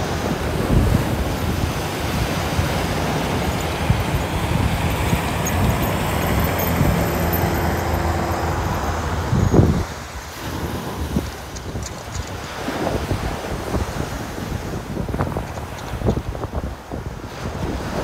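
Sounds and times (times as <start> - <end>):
ocean surf: 0.0 - 18.0
wind on microphone: 0.0 - 18.0
low engine drone: 1.0 - 11.0.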